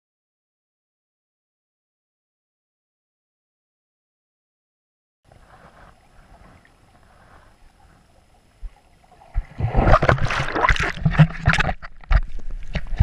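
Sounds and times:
faint low rumble: 5.3s - 13.0s
water splashing with sharp knocks: 9.2s - 13.0s.

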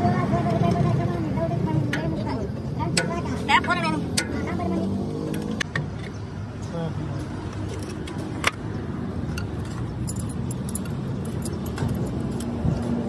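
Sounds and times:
metal tools clinking: 9.4s - 12.6s.

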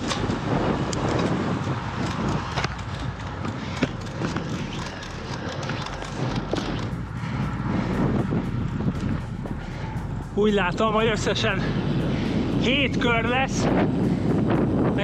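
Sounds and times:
sharp bike clicks: 0.0s - 10.2s
rolling road noise: 0.0s - 15.0s
wind on microphone: 0.0s - 15.0s.

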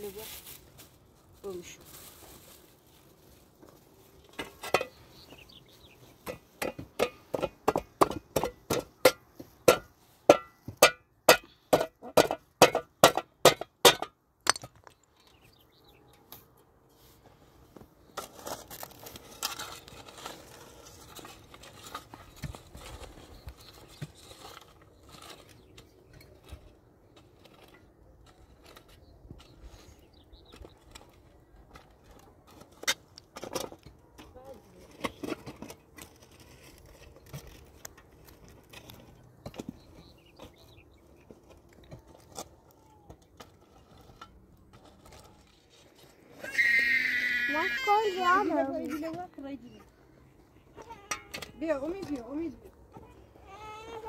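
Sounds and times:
clattering and rustling: 1.9s - 15.5s.

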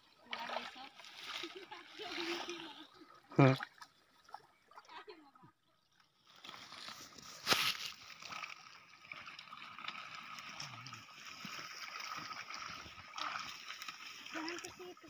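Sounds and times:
water sloshing and gurgling: 0.0s - 15.0s
sharp water splash: 6.3s - 14.9s.

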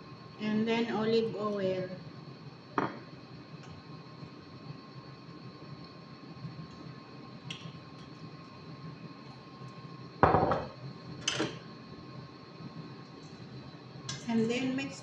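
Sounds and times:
faint steady hum: 0.0s - 15.0s
glass bottle knocking on stone: 10.2s - 10.7s.

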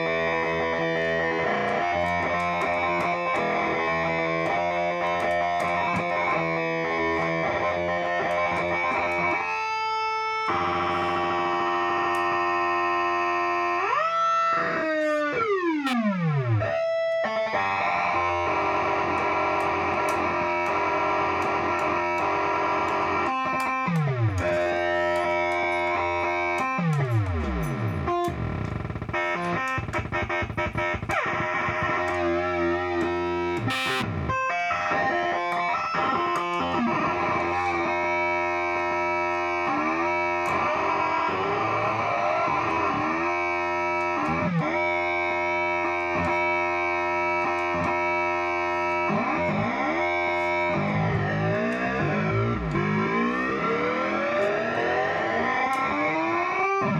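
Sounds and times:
instrumental drone chord: 15.8s - 56.9s
noisy crackle: 26.5s - 44.8s.

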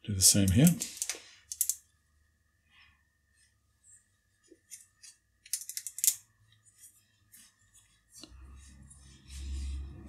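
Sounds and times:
small tool clicking and scraping: 0.5s - 1.8s, 4.7s - 6.2s.

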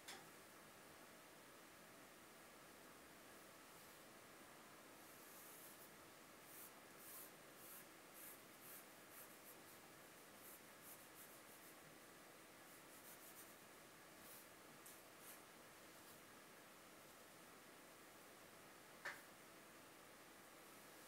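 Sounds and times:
pencil sketching on paper: 5.1s - 5.9s, 6.5s - 11.8s, 12.7s - 13.6s.

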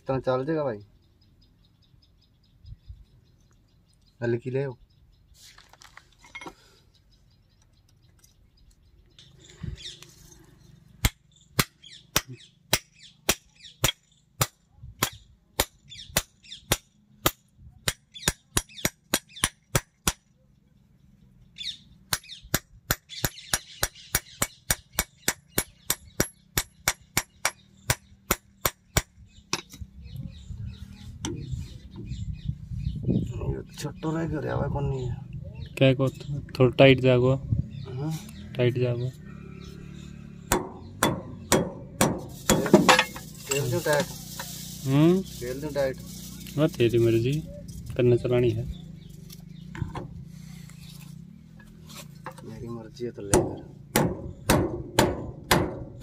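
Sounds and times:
hammer striking metal: 40.5s - 43.2s.

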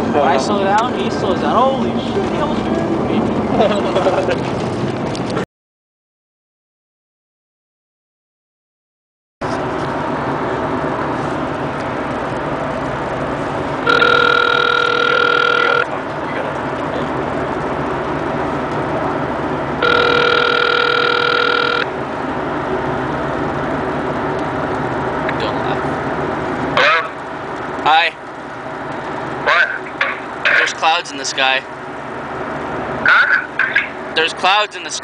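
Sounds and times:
telephone ringback tone: 13.8s - 15.9s, 19.8s - 21.9s.

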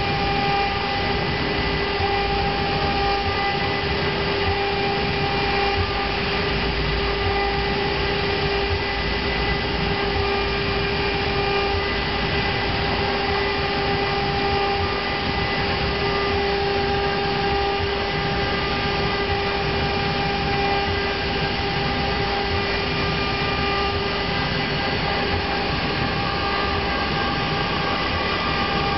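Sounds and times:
router spindle high whine: 0.0s - 28.9s
rushing cutting noise: 0.0s - 28.9s.

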